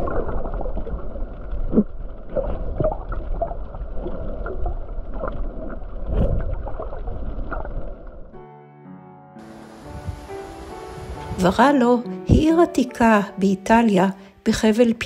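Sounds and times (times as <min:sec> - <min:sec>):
water gurgles: 0:00.0 - 0:08.4
low underwater rumble: 0:00.0 - 0:08.5.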